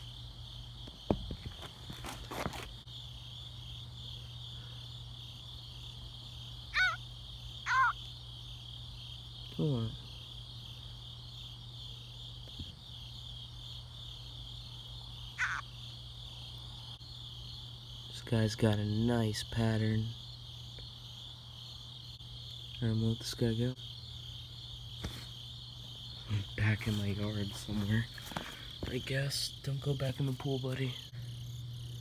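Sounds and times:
crickets chirping: 0.0s - 32.0s
short pitched calls: 6.7s - 7.0s, 7.6s - 8.1s, 15.3s - 15.7s.

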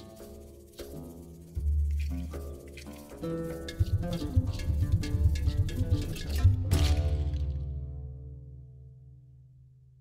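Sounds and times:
music with percussive beat: 0.0s - 8.0s.

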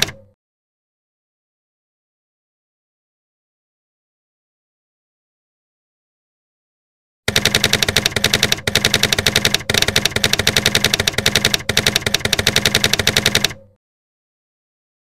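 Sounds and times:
keyboard key clicks: 0.0s - 0.3s, 7.3s - 13.7s.

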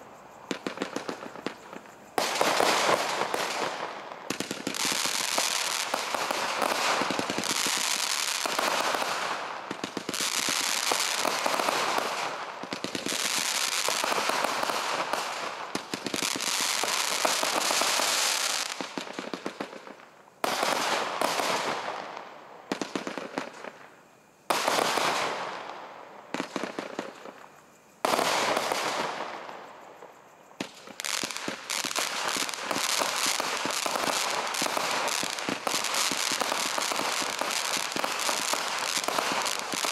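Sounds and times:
firework crackling bursts: 0.0s - 39.9s.

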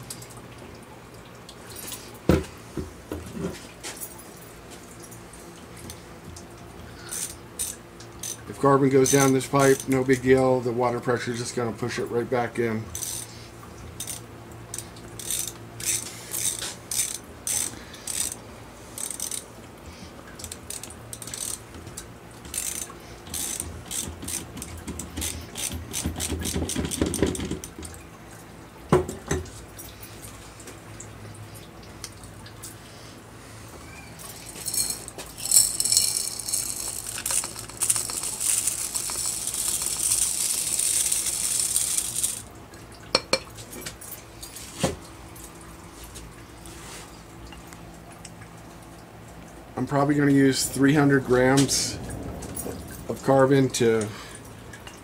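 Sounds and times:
light clicks of fittings and tools: 7.0s - 10.3s, 13.0s - 13.4s, 14.0s - 18.4s, 19.0s - 27.9s, 34.2s - 42.4s.

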